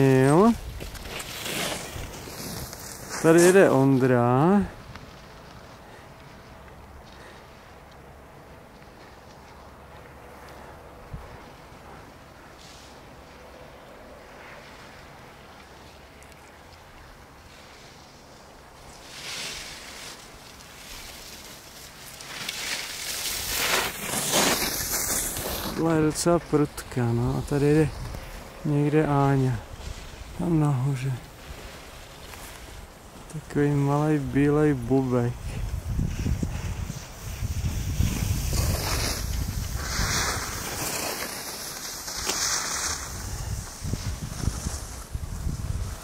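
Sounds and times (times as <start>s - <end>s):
skis scraping over snow: 0.0s - 7.8s, 17.4s - 46.0s
wind buffeting microphone: 35.2s - 40.8s, 43.0s - 46.0s
hiss: 36.1s - 45.6s.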